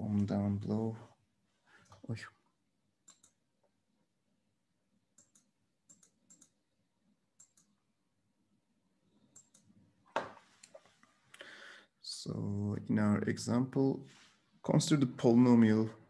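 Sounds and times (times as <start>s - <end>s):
computer mouse clicks: 3.0s - 3.4s, 5.2s - 6.6s, 7.4s - 7.8s, 9.2s - 9.7s.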